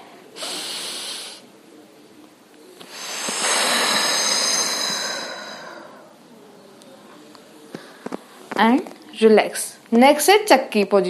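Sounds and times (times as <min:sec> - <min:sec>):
woman breathing: 0:00.3 - 0:01.5, 0:02.8 - 0:06.2.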